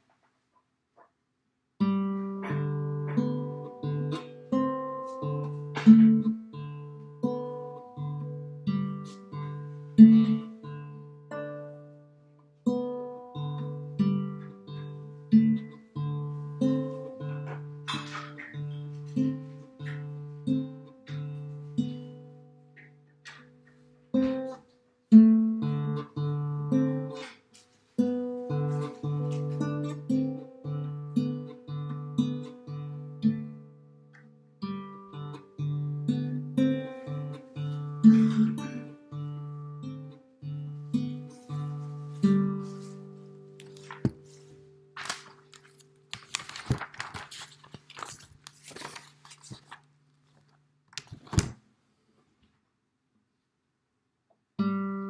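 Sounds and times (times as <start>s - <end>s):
classical guitar fingerpicked slowly: 1.8s - 46.5s, 54.6s - 55.0s
paper pages rustling: 17.4s - 20.2s, 41.3s - 51.6s
page slap: 17.5s - 18.6s, 43.6s - 44.4s, 45.0s - 49.8s, 50.9s - 51.6s.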